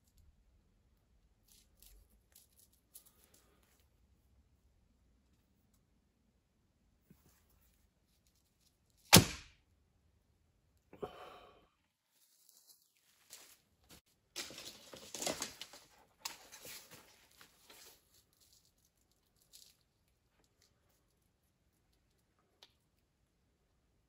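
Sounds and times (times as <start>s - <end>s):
rustling and scraping: 1.4s - 4.1s, 12.1s - 21.3s
bow loosing sharp crack: 9.1s - 9.5s.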